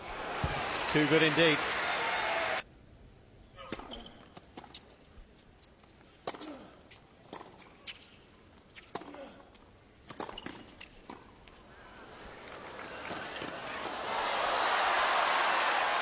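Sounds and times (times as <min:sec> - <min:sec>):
crowd noise: 0:00.0 - 0:02.6, 0:11.8 - 0:16.0.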